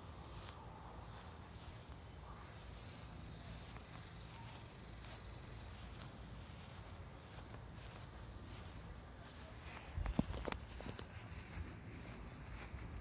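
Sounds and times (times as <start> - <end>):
insects chirring: 0.3 - 8.9.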